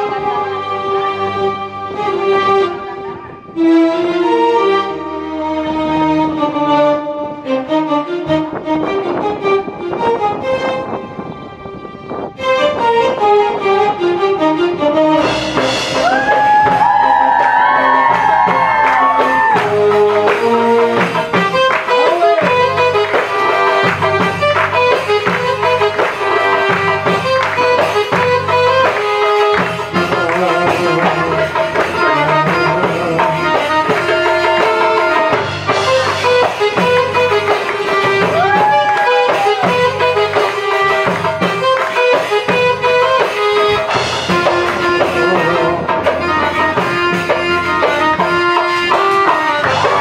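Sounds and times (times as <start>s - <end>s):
keyboard plucked-string melody: 0.0s - 50.0s
drum beat: 15.4s - 50.0s.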